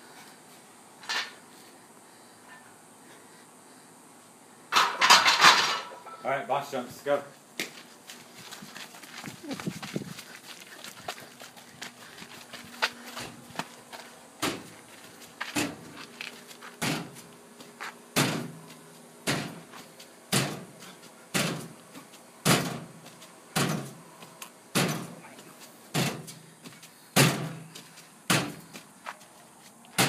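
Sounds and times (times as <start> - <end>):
feet thudding on jump box: 8.4 - 10.3, 12.7 - 14.8, 18.2 - 21.8, 22.4 - 24.0, 24.8 - 25.2, 25.9 - 29.2.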